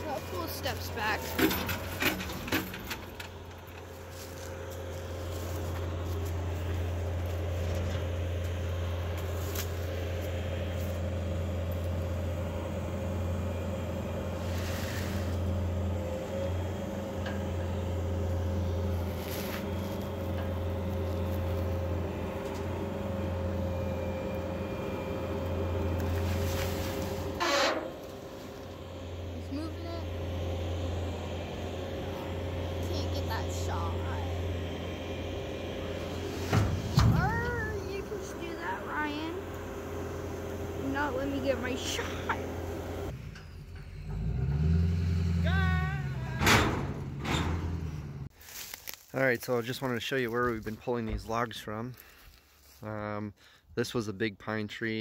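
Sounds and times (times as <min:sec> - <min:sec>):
steady whine: 0:00.0 - 0:43.9
diesel engine running: 0:00.0 - 0:53.6.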